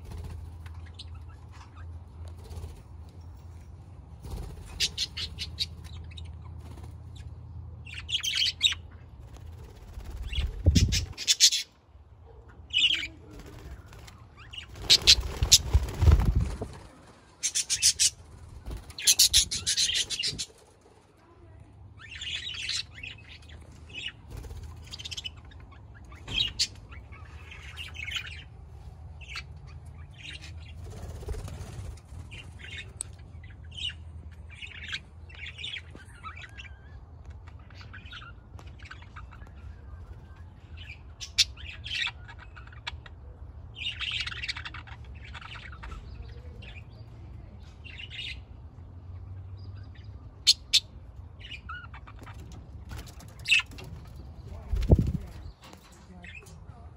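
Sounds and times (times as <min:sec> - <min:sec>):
sharp bird calls: 0:04.3 - 0:11.8, 0:14.0 - 0:16.4, 0:17.4 - 0:20.6
budgerigars chirping: 0:04.6 - 0:06.4, 0:07.9 - 0:09.0, 0:10.2 - 0:11.7, 0:17.4 - 0:18.2, 0:18.9 - 0:20.5, 0:50.4 - 0:52.6, 0:53.2 - 0:54.0.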